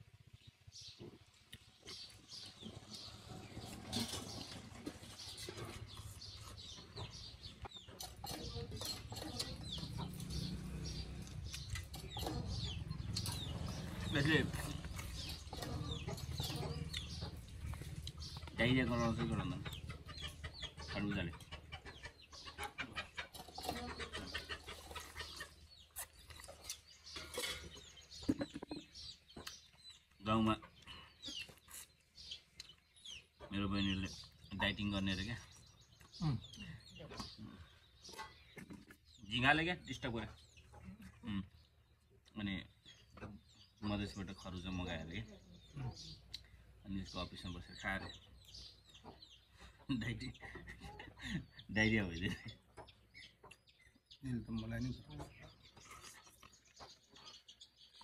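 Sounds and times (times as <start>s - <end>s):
chickens clucking: 0.2s - 58.0s
crunching and chewing: 1.3s - 18.6s, 23.2s - 28.4s, 29.2s - 33.4s, 55.6s - 58.0s.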